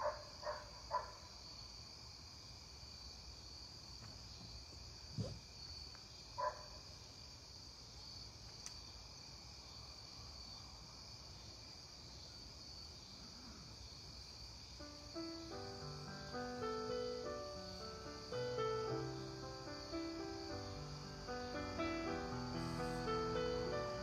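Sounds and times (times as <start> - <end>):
crickets chirping: 0.0 - 24.0
brief bumps: 5.2 - 5.5.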